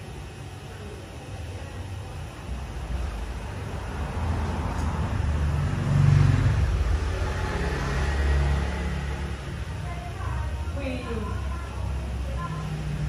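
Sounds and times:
low engine rumble: 0:00.0 - 0:13.0.

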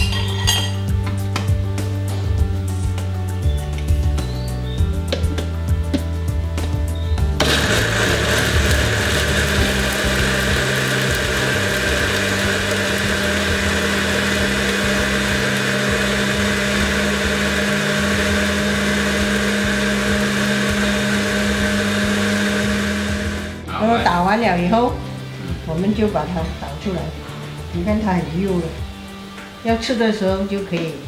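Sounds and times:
blender motor running: 0:07.4 - 0:23.6.

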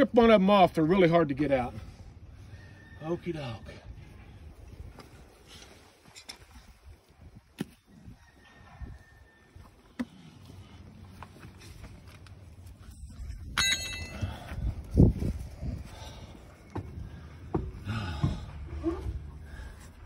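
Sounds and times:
metallic ring: 0:13.4 - 0:14.6.

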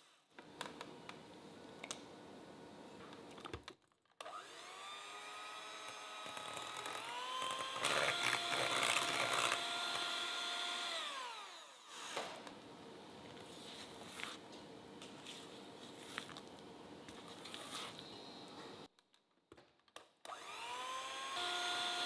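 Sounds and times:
electric hand mixer whirring: 0:04.2 - 0:12.3, 0:20.3 - 0:22.0.

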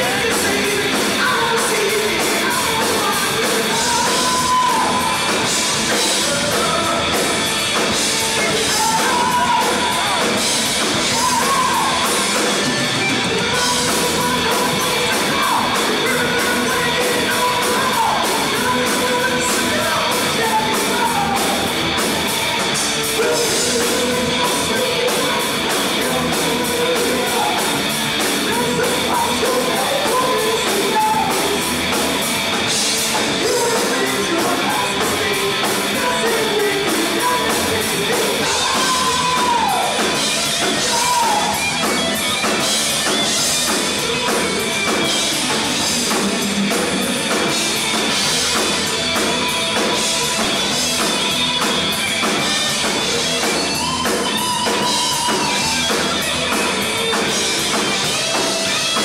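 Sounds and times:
man singing: 0:00.0 - 0:21.8, 0:23.0 - 0:31.9, 0:32.7 - 0:41.8
bass guitar: 0:00.0 - 0:59.0
drum kit: 0:00.0 - 0:59.0
electric guitar: 0:00.0 - 0:59.0.

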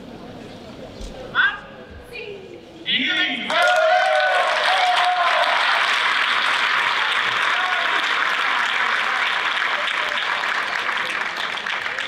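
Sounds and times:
audience applauding: 0:03.5 - 0:12.0.

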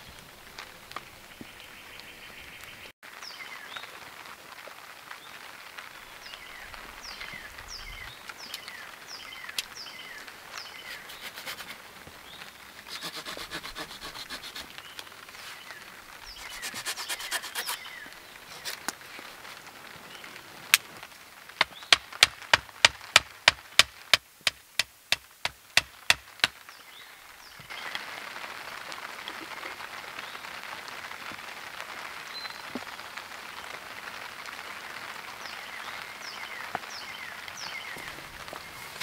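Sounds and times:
steady rain: 0:00.0 - 0:39.0
sharp knocks: 0:21.6 - 0:26.6.

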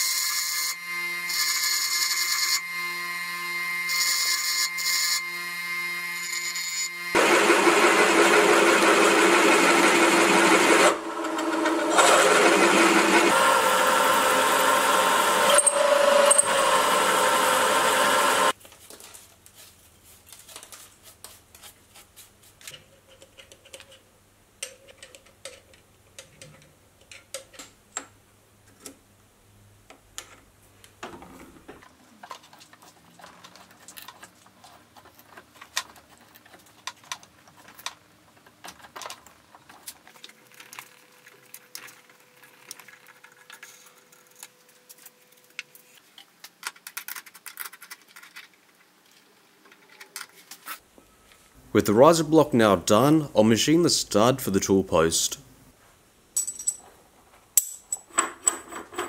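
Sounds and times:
drill boring into steel: 0:00.0 - 0:18.5.

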